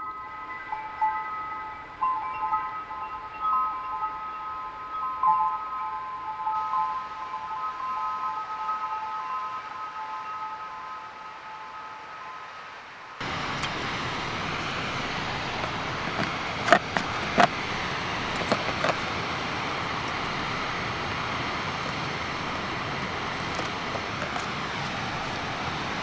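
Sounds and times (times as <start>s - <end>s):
rushing outdoor background noise: 0.0s - 26.0s
cook pot parts clicking: 14.7s - 19.2s.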